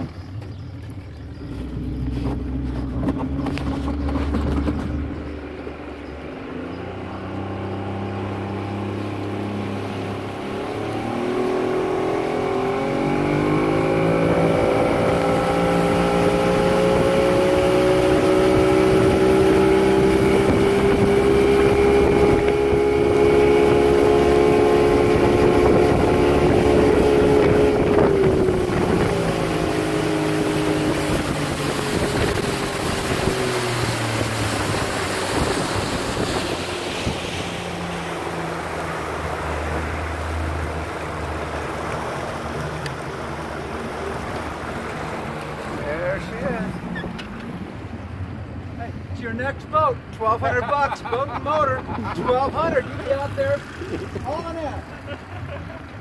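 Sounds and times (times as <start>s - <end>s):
outboard motor: 0.0s - 56.0s
water rushing past: 0.0s - 56.0s
wind rushing: 17.0s - 39.0s.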